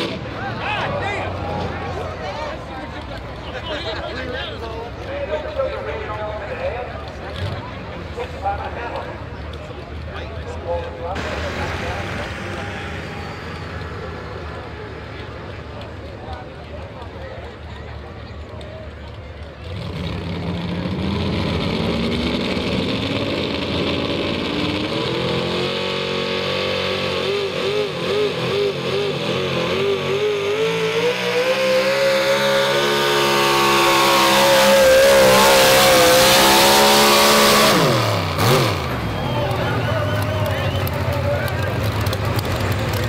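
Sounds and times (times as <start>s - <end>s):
truck engine revving hard: 0.0s - 2.2s, 11.2s - 16.6s, 19.6s - 43.0s.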